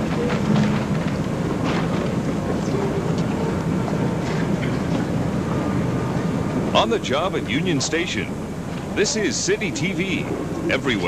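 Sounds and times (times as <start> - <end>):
faint clicks and clatter: 0.0 - 5.2
station concourse hubbub: 0.0 - 11.0.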